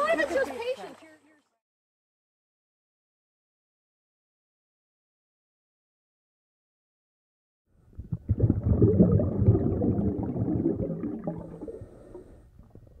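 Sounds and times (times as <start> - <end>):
muffled bubbling water: 7.9 - 13.0.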